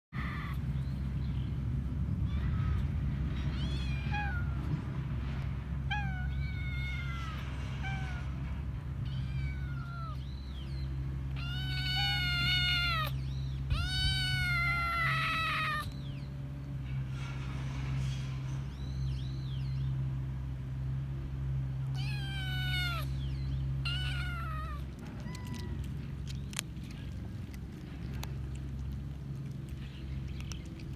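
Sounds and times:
kitten meowing: 9.0s - 10.2s, 11.4s - 16.0s, 21.9s - 23.2s, 23.8s - 25.9s.

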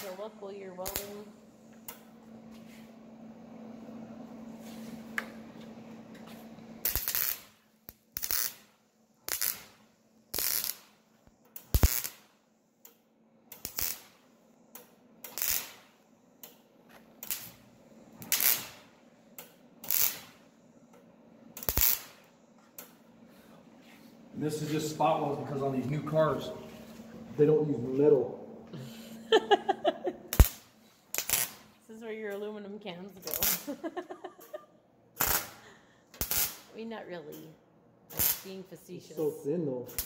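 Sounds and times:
welder arc crackling: 0.0s - 2.2s, 6.7s - 16.6s, 17.2s - 23.0s, 29.6s - 32.5s, 33.2s - 34.6s, 35.2s - 35.6s, 36.2s - 37.5s, 38.1s - 40.0s
steady low hum: 0.0s - 40.0s.

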